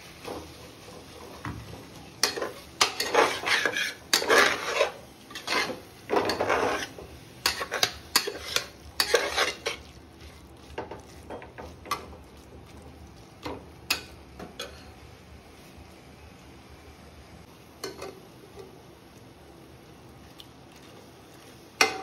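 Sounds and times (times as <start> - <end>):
metal spoon scraping in pot: 2.2 - 9.8.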